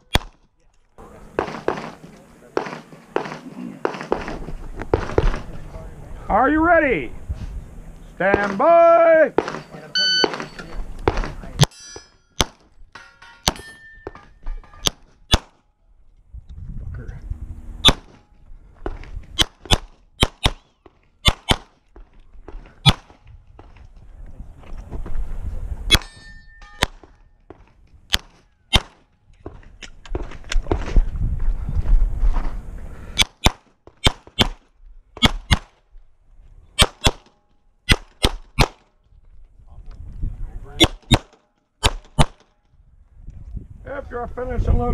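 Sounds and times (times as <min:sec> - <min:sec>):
pistol shots: 0:01.4 - 0:02.0, 0:08.3 - 0:08.7, 0:09.3 - 0:11.8, 0:12.4 - 0:12.6, 0:14.8 - 0:15.6, 0:17.8 - 0:18.2, 0:19.4 - 0:21.8, 0:22.8 - 0:23.1, 0:28.1 - 0:29.1, 0:33.2 - 0:34.6, 0:40.8 - 0:42.5
metallic ringing: 0:09.4 - 0:10.8, 0:11.6 - 0:14.9, 0:25.9 - 0:26.9.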